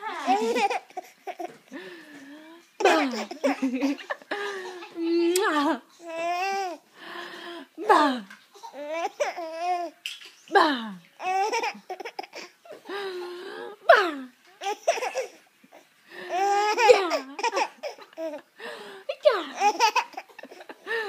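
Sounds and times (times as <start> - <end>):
baby laughing: 0.2 - 1.6, 2.7 - 5.0, 11.2 - 12.8, 14.6 - 15.4, 16.3 - 18.5, 19.5 - 21.0.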